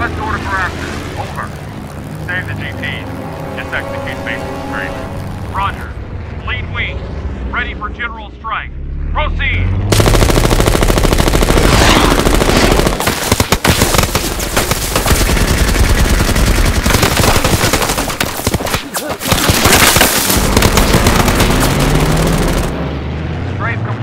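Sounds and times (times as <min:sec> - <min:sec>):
rapid machine-gun fire: 0:09.9 - 0:22.8.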